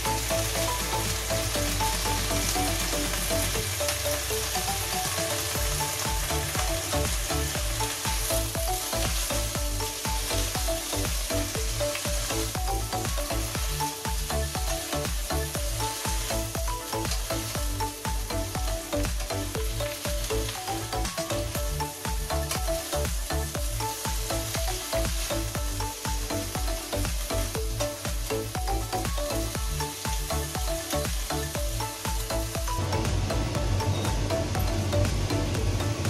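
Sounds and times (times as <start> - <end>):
background music with steady beat: 0.0 - 36.0
greens sizzling in a pan: 0.0 - 36.0.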